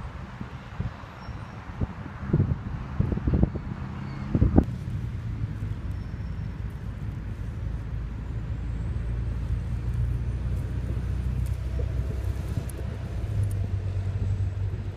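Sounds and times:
low outdoor rumble: 0:00.0 - 0:14.9.

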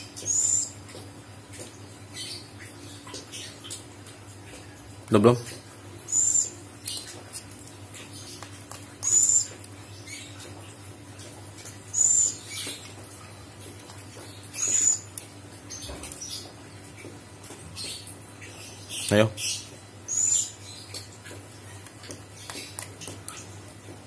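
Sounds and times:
owl squeaky calls: 0:06.1 - 0:06.6, 0:09.0 - 0:09.6, 0:12.0 - 0:12.4, 0:14.6 - 0:15.0, 0:19.4 - 0:20.5.

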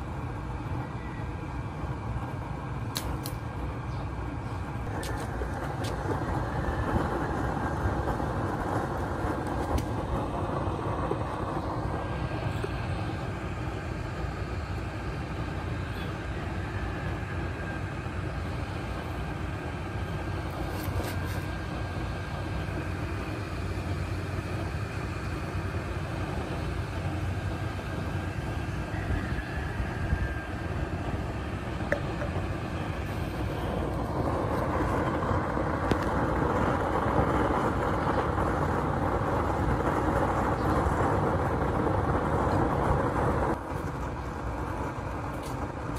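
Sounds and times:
oil burner blower and flame rushing: 0:00.0 - 0:45.9.

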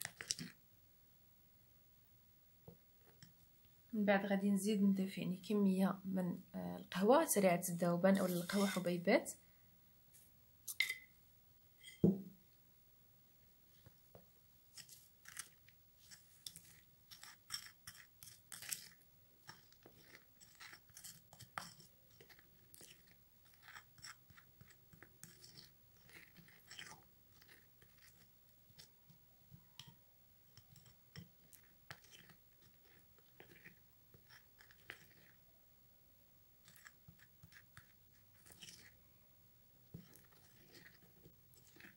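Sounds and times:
plastic spoon scraping glass bowl: 0:00.0 - 0:00.6, 0:08.1 - 0:09.0, 0:14.8 - 0:28.9, 0:30.6 - 0:35.4, 0:36.6 - 0:39.0, 0:39.9 - 0:41.9
knock: 0:12.0 - 0:12.3.

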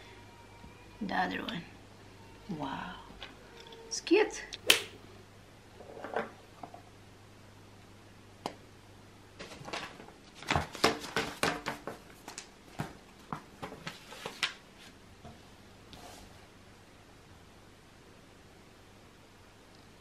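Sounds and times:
paper and cloth rustling: 0:09.4 - 0:15.0.

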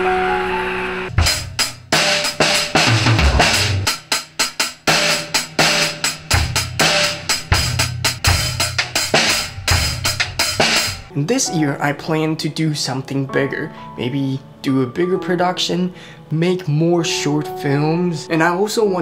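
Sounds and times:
deep drum thumps: 0:01.1 - 0:11.1.

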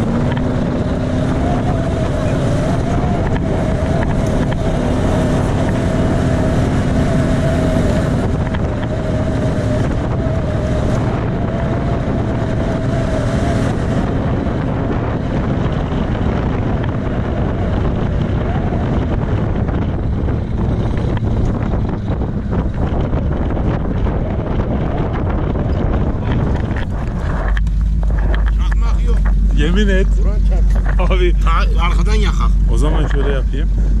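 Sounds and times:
steady whine: 0:00.0 - 0:34.0
vehicle engine driving: 0:00.0 - 0:34.0
wind buffeting microphone: 0:00.0 - 0:34.0
tyres rumbling on gravel: 0:13.8 - 0:34.0.

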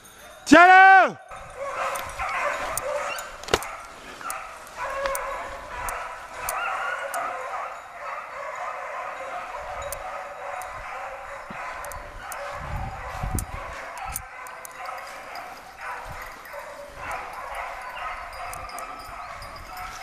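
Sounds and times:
hounds baying and yelping: 0:00.0 - 0:00.5, 0:01.2 - 0:20.0
twigs snapping: 0:01.8 - 0:07.2.

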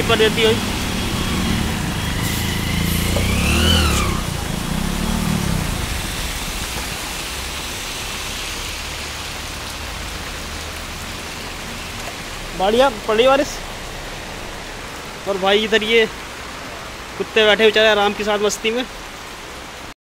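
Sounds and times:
lorry engine rumble: 0:00.0 - 0:08.8
heavy rain on a road: 0:00.0 - 0:20.0
rising and falling whine: 0:00.6 - 0:06.9.

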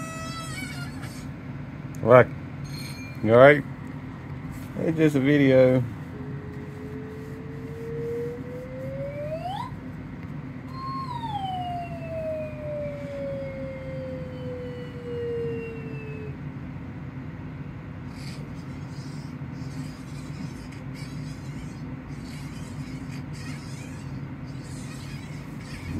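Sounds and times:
steady low hum: 0:00.0 - 0:25.9
siren-like tone: 0:04.8 - 0:16.6.

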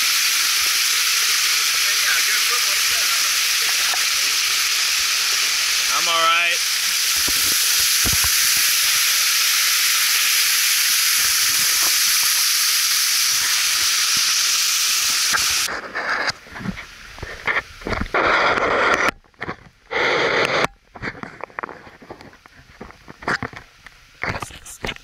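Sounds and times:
waterfall splashing onto rocks: 0:00.0 - 0:15.7.

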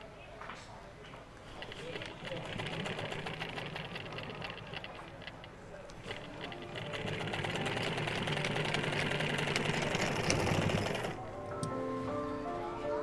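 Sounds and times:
sewing machine stitching: 0:01.4 - 0:11.2
background music: 0:06.1 - 0:13.0.

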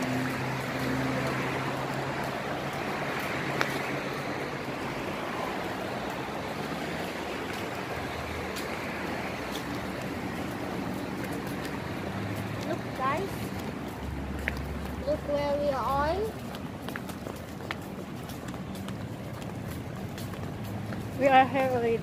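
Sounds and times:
city road traffic: 0:00.0 - 0:22.0.

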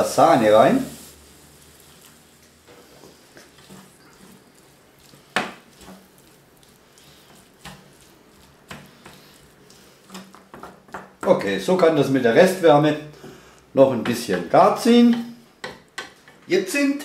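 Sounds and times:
spatula scraping frying pan: 0:00.1 - 0:11.2
spatula knocking on pan: 0:10.1 - 0:11.4, 0:15.1 - 0:16.4.

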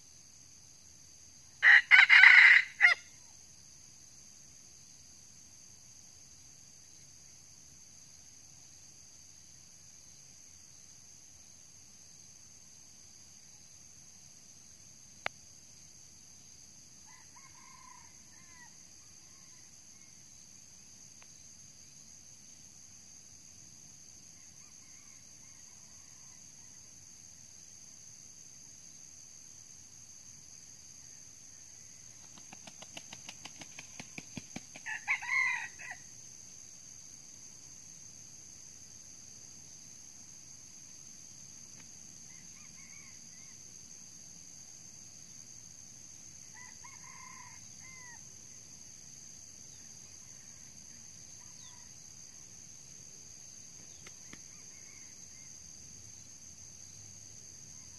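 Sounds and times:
high insect drone: 0:00.0 - 0:57.9
junglefowl rooster calling: 0:01.6 - 0:03.2, 0:34.8 - 0:36.0.

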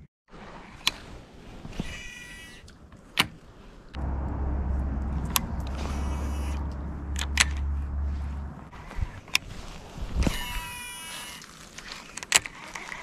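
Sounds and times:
low rumble: 0:04.0 - 0:09.2.

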